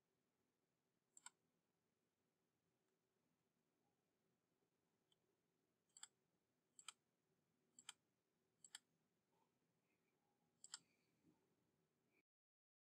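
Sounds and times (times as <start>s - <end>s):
faint computer mouse clicks: 8.6s - 8.9s, 10.6s - 11.0s.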